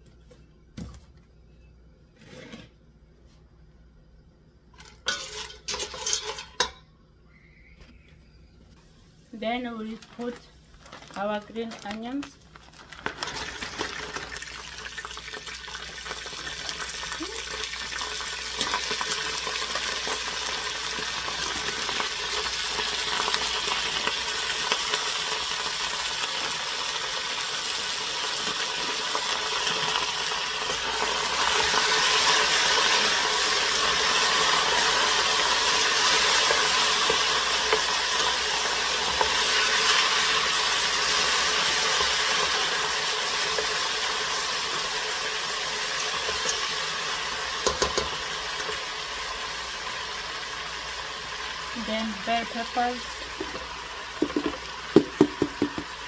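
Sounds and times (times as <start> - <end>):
food sizzling in hot oil: 13.1 - 56.0.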